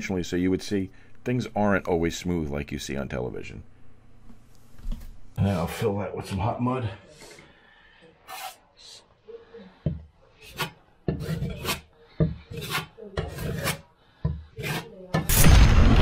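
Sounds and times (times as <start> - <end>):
drywall knife scraping compound: 8.2 - 8.6, 10.4 - 15.2.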